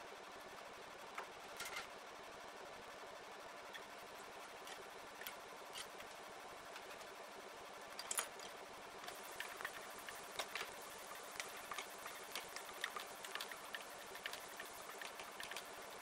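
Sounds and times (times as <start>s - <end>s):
onion sizzling in oil: 8.9s - 16.0s.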